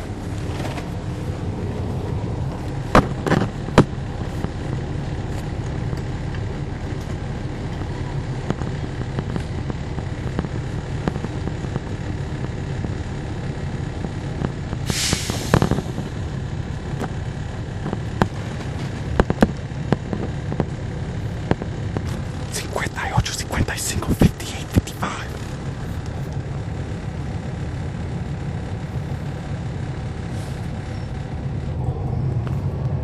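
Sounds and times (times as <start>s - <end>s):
bus diesel engine running: 0.0s - 33.0s
air hiss: 14.9s - 15.8s.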